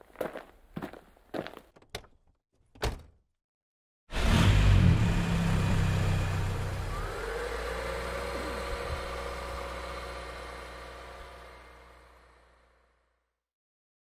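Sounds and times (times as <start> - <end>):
car engine starting and driving off: 4.1 - 13.0.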